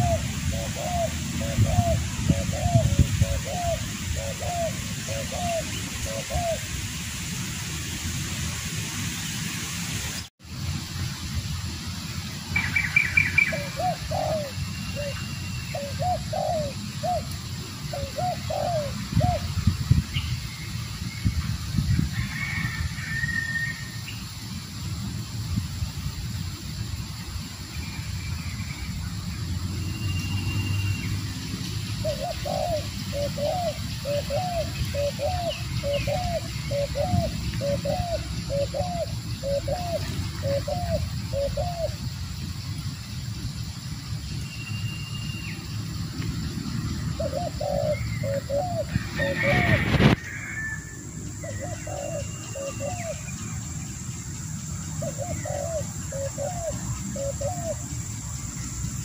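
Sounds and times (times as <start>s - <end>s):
dove cooing: 0.0s - 6.7s, 13.2s - 19.6s, 31.9s - 42.1s, 47.1s - 50.5s, 51.4s - 53.3s, 54.9s - 57.9s
small birds chirping: 27.1s - 49.0s, 51.3s - 59.0s.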